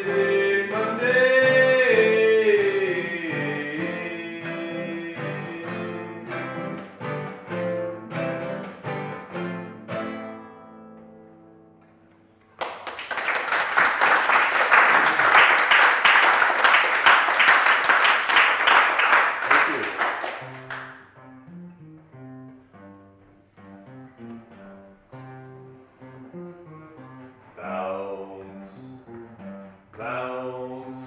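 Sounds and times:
picked guitar notes: 0:00.0 - 0:12.5, 0:19.7 - 0:30.8.

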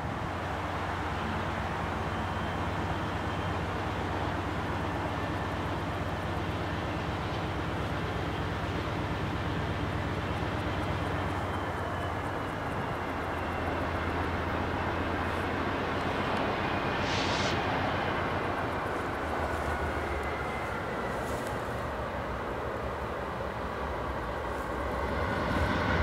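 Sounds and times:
diesel locomotive engines droning: 0:00.0 - 0:26.0
faint high whine: 0:00.0 - 0:26.0
short hiss: 0:16.7 - 0:18.0.

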